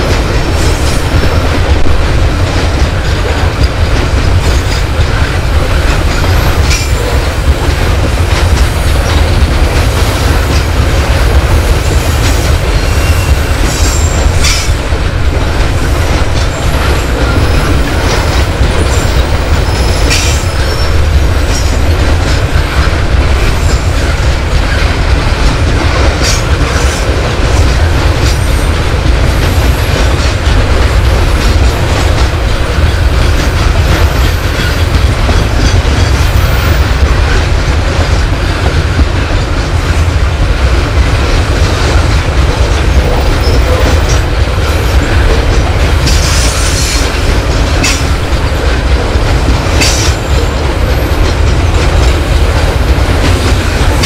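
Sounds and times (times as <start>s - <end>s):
steel train wheels rumbling on rail: 0.0s - 54.0s
high wheel squeal: 12.9s - 14.7s.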